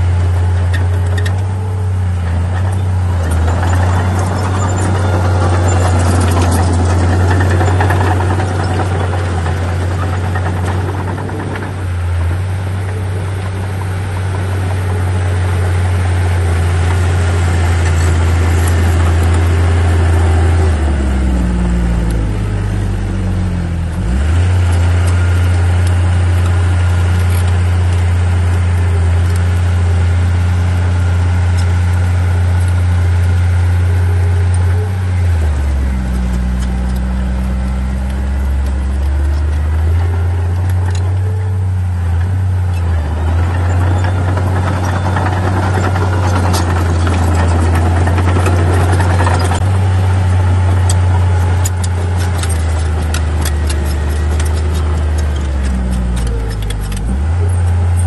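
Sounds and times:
bulldozer diesel engine droning: 0:00.0 - 0:58.0
rattling: 0:02.3 - 0:20.9, 0:32.5 - 0:58.0.

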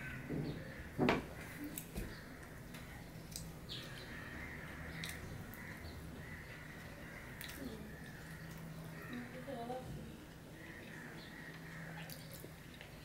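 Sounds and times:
chewing: 0:06.5 - 0:09.4, 0:10.3 - 0:13.0.

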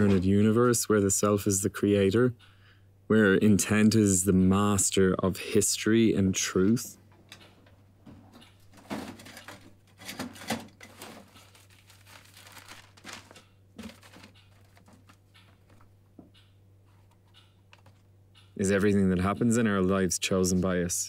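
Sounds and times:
papers rustling: 0:08.7 - 0:15.9.

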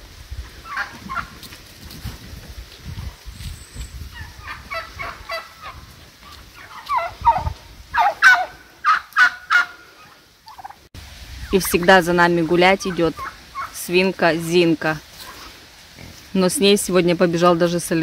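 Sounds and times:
turkeys calling: 0:00.6 - 0:01.6, 0:04.1 - 0:14.0.

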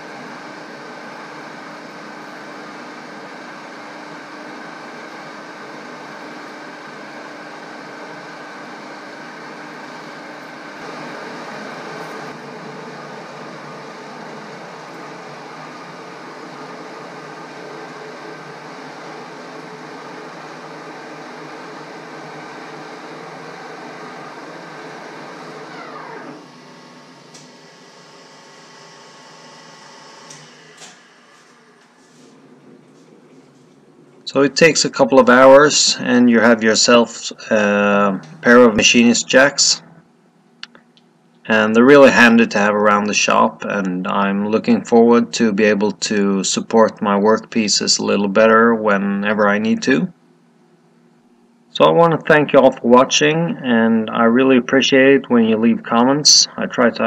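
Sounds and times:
metal lathe running: 0:00.0 - 0:33.1
steady low hum: 0:00.0 - 0:57.0.

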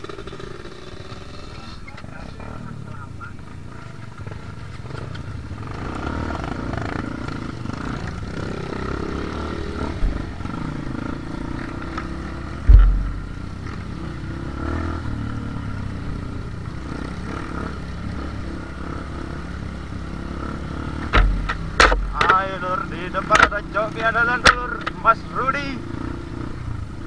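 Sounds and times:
motorcycle engine revving: 0:00.0 - 0:27.0
heavy low thump: 0:12.6 - 0:13.7, 0:21.0 - 0:22.4.

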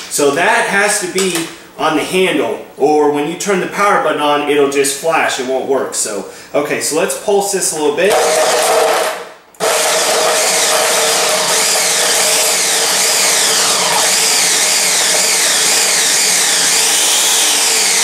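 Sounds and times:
blender chopping vegetables and ice: 0:08.1 - 0:18.0.

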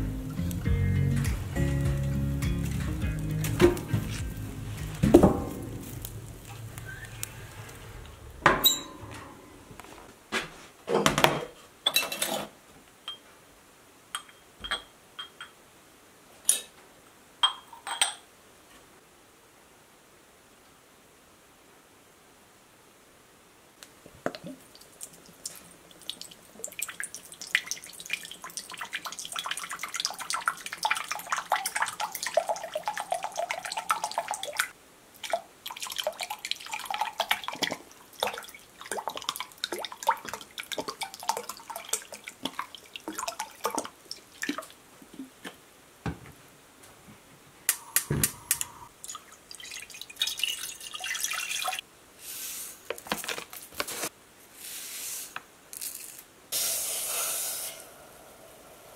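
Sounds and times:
liquid glugging and splashing: 0:24.4 - 0:45.4, 0:48.9 - 0:51.8
seeds pouring into ceramic bowl: 0:54.6 - 0:56.7.

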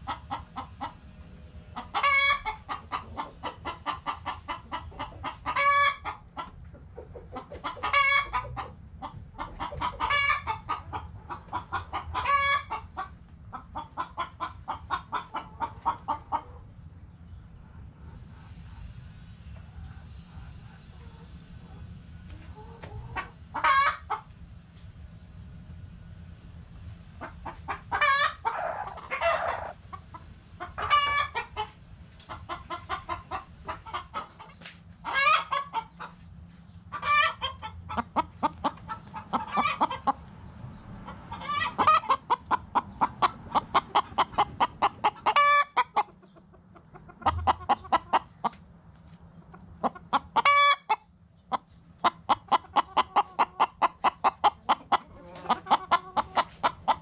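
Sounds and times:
chickens clucking: 0:00.0 - 0:57.0
chicken loud long calls: 0:27.7 - 0:29.8.

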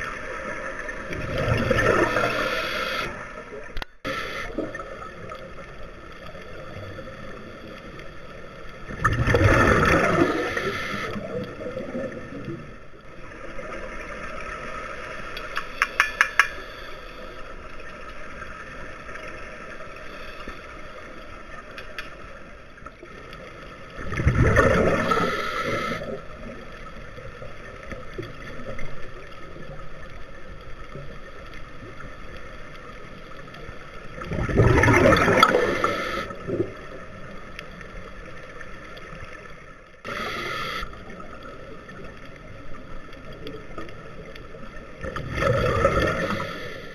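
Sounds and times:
underwater bubbles rushing: 0:00.0 - 0:16.5, 0:20.7 - 0:46.9
regulator hiss: 0:02.0 - 0:03.4, 0:04.1 - 0:04.8, 0:10.3 - 0:11.2, 0:25.0 - 0:26.2, 0:35.4 - 0:36.4, 0:40.1 - 0:41.2, 0:46.2 - 0:46.9
small clicks: 0:15.2 - 0:17.1, 0:21.6 - 0:23.5.

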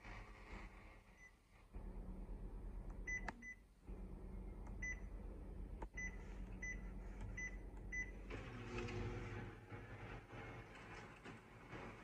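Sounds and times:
copier humming: 0:01.8 - 0:12.0
copier motors running: 0:03.8 - 0:12.0.

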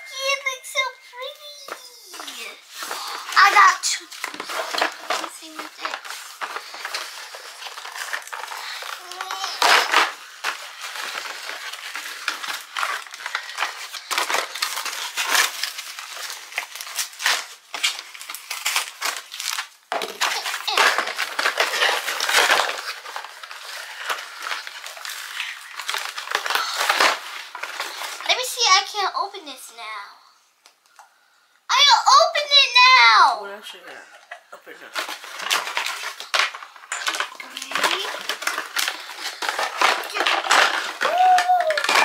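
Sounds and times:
cardboard ripping and crunching: 0:02.2 - 0:28.3, 0:34.9 - 0:42.0.

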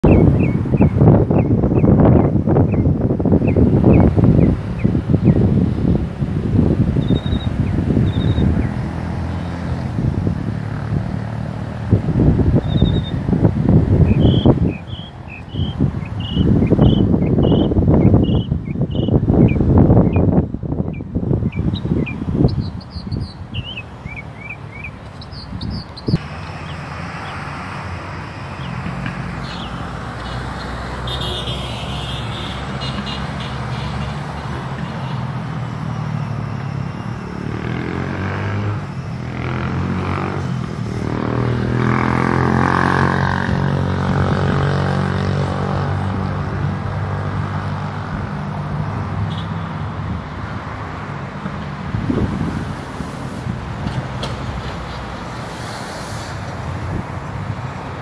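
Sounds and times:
high bird chirps: 0:00.0 - 0:05.4, 0:07.0 - 0:08.9, 0:12.6 - 0:13.2, 0:14.0 - 0:27.4
rumble of passing vehicles: 0:00.0 - 0:58.0
vehicle engine passing: 0:07.9 - 0:15.0, 0:26.1 - 0:48.8.

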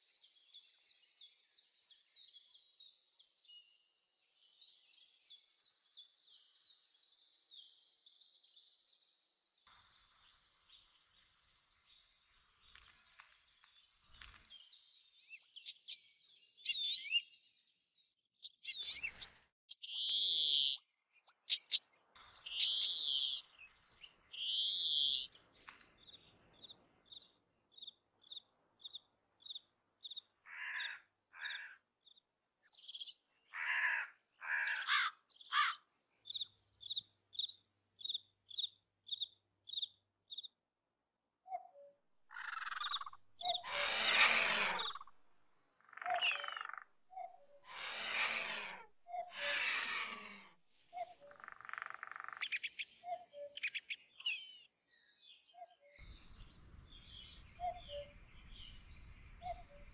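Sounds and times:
raspy bird calls: 0:18.6 - 0:31.8, 0:32.7 - 0:40.5, 0:42.3 - 0:45.2, 0:45.8 - 0:54.7, 0:55.6 - 0:59.9
birds chirping and whistling: 0:18.7 - 0:20.8, 0:22.4 - 0:25.3, 0:42.4 - 0:45.1, 0:46.1 - 0:51.4, 0:52.3 - 0:59.9.

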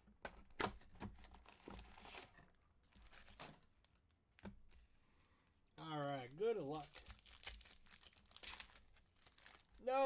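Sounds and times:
cellophane crinkling and tearing: 0:01.2 - 0:04.8, 0:05.8 - 0:10.0.

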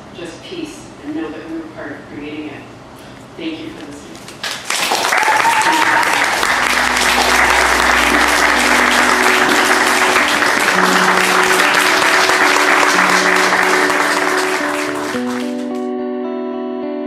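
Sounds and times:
audience applauding: 0:04.4 - 0:15.9
guitar music: 0:06.1 - 0:17.0.

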